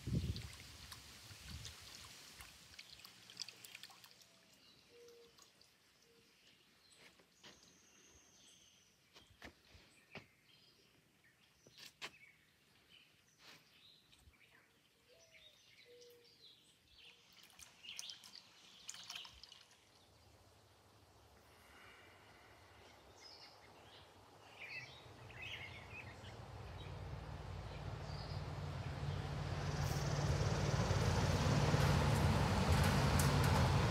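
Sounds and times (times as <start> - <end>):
faint bird chirps: 4.4 - 9.4, 13.0 - 19.5.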